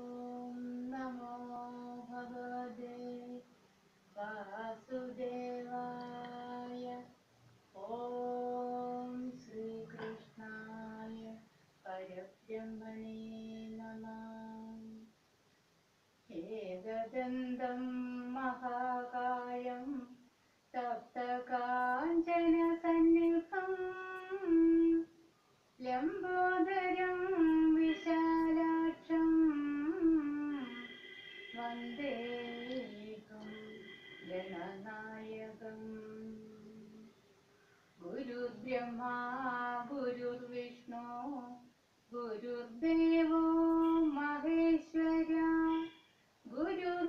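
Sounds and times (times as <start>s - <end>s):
woman chanting: 0.0s - 3.5s, 4.2s - 15.1s, 16.3s - 25.1s, 25.8s - 37.2s, 38.0s - 47.0s
woman singing unaccompanied: 0.0s - 15.2s, 16.2s - 37.3s, 38.0s - 47.0s.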